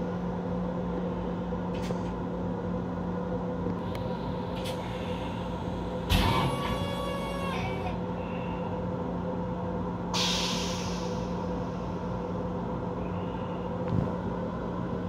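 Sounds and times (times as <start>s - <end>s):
railcar hum: 0.0s - 15.0s
hiss of released air: 10.1s - 11.8s.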